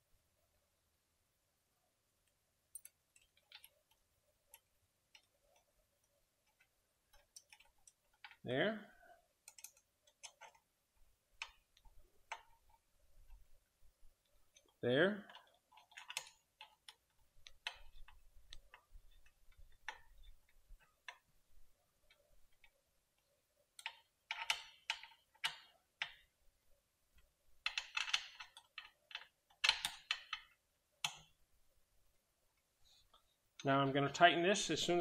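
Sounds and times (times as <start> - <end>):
metallic clicking of tools and bolts: 2.7 - 8.4, 9.4 - 10.7, 14.5 - 21.3, 27.2 - 31.4.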